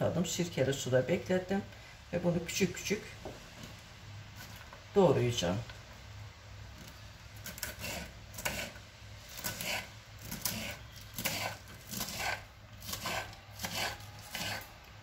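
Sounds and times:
knife slicing stems on wooden board: 6.8 - 14.7.

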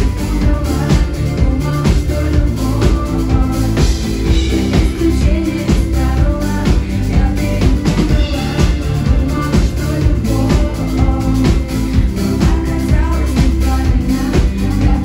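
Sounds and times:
drum kit dance beat: 0.0 - 15.0
live band playing pop: 0.0 - 15.0
woman singing: 0.0 - 15.0.

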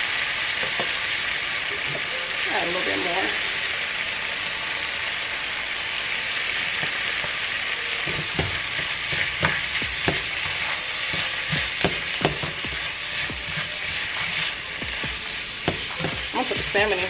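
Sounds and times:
vegetables sizzling in frying pan: 0.0 - 17.0
utensil clacking against pan: 8.0 - 16.7.

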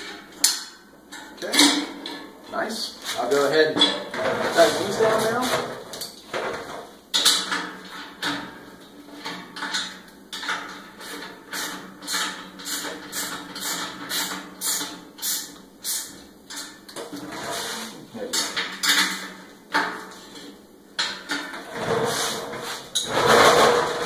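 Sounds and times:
metal parts clanking: 22.9 - 24.0.

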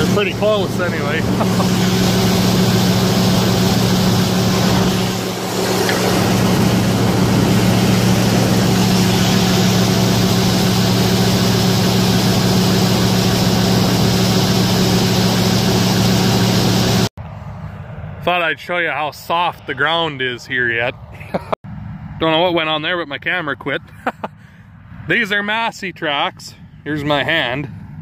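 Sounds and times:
combine harvester engine drone: 0.0 - 18.6.

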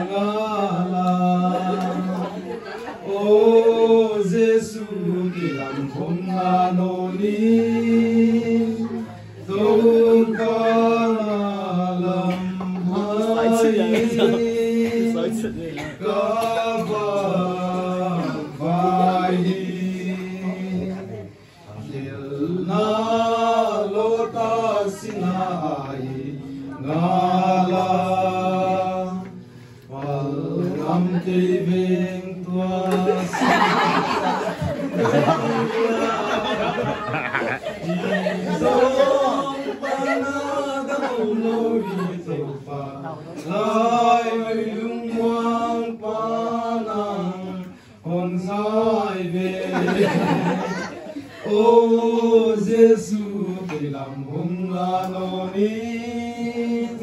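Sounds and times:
voices chanting together: 0.0 - 57.0
people talking: 0.9 - 22.6, 30.0 - 44.1, 49.6 - 51.8.

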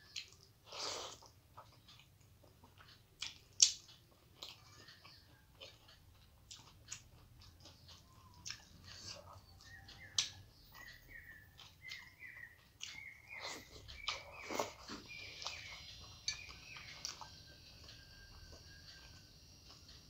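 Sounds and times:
chewing with wet mouth smacks: 0.0 - 18.0
bird chirping: 4.6 - 6.0, 7.0 - 19.8.

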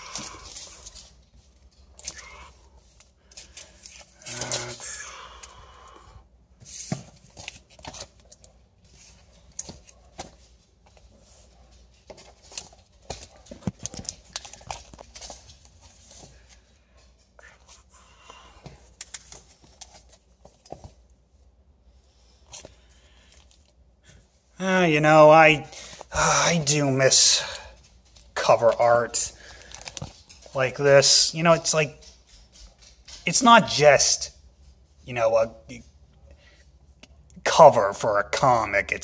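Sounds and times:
comic books rustling and crinkling: 0.0 - 5.6, 6.6 - 21.1, 22.0 - 24.3, 25.8 - 31.8.

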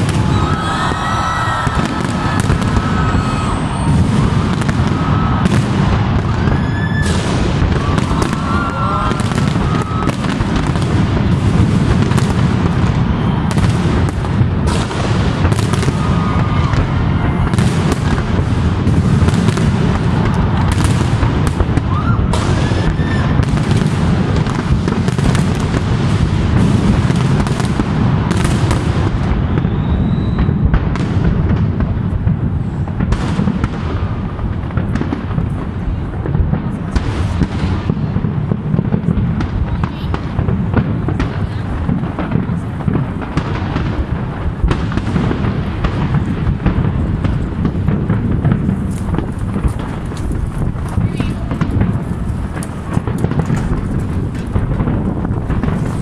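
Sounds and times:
firework shells bursting: 0.0 - 32.2, 41.9 - 56.0
fireworks crackling: 0.0 - 56.0.

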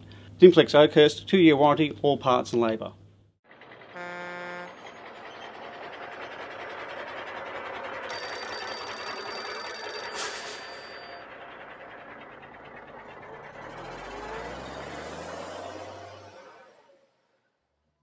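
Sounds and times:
vehicle driving noise: 3.4 - 17.6
vehicle horn honk: 4.0 - 5.0
bell telephone ringing: 8.0 - 11.7.

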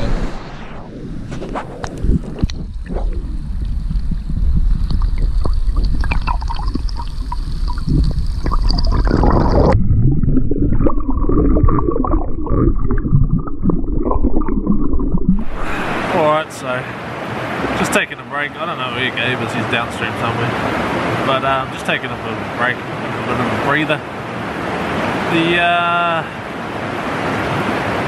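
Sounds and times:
muffled bubbly underwater sound: 0.0 - 16.1
stream water splashing and gurgling: 0.0 - 28.0.

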